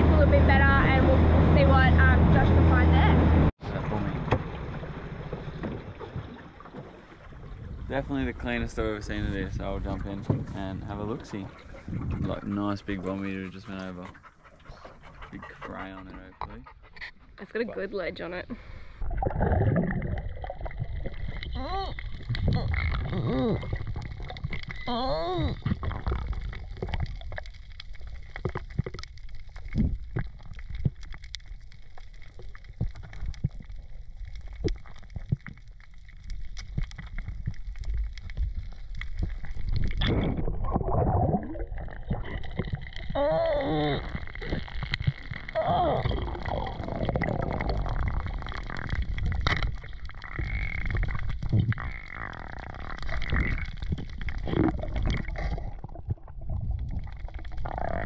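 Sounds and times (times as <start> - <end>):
underwater rumble of moving water: 0.0 - 58.0
wavering gurgling: 0.0 - 58.0
sharp underwater clicks: 43.8 - 55.9.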